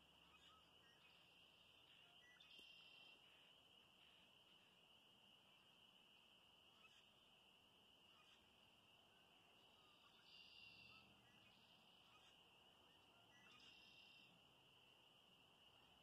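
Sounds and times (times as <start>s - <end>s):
chorus of small animals calling: 9.6s - 14.4s.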